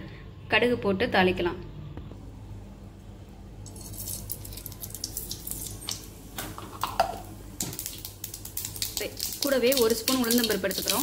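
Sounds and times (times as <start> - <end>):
mustard seeds crackling in oil: 3.6 - 11.0.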